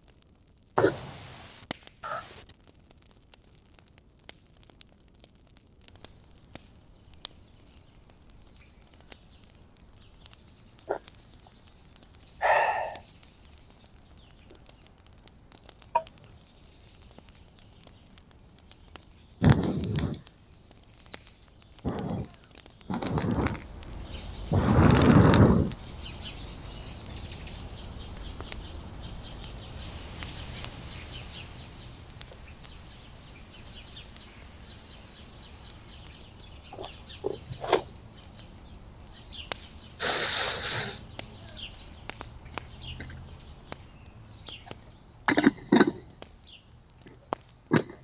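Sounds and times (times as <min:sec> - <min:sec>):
loud rustling bursts: 0:19.4 - 0:27.5, 0:40.0 - 0:43.9.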